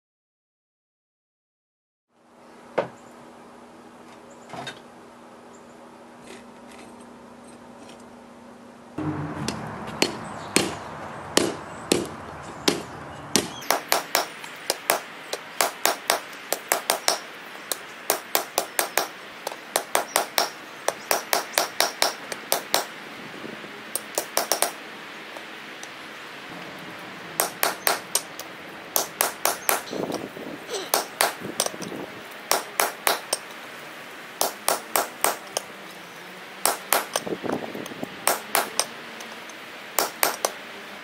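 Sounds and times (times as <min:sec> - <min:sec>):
hammer striking metal on anvil: 0:09.0 - 0:10.8, 0:11.4 - 0:17.3, 0:19.8 - 0:22.9, 0:24.0 - 0:24.8, 0:27.4 - 0:28.4, 0:29.0 - 0:30.2, 0:30.9 - 0:31.9, 0:32.5 - 0:33.5, 0:34.4 - 0:35.6, 0:36.6 - 0:37.3, 0:38.2 - 0:38.9, 0:40.0 - 0:40.5.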